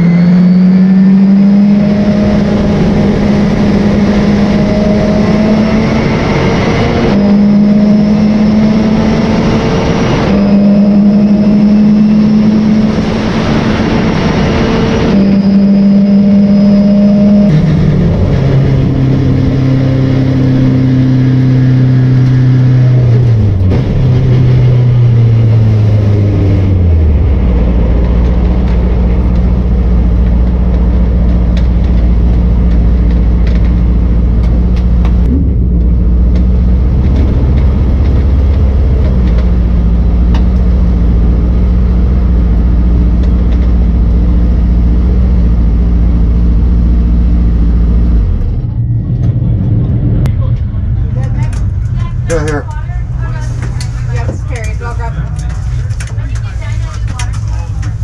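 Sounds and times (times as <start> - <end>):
race car engine revving: 0.0 - 58.0
wind and road noise: 0.0 - 58.0.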